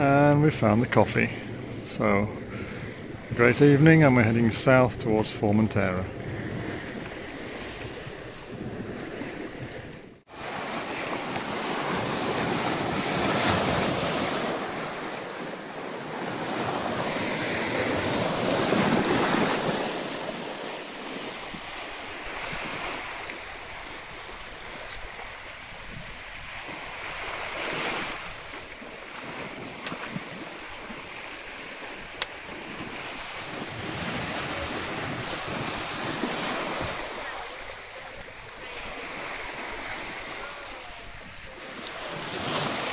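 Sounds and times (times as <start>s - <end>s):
waves washing along hull: 0.0s - 42.9s
wind buffeting microphone: 4.4s - 10.2s, 21.0s - 42.9s.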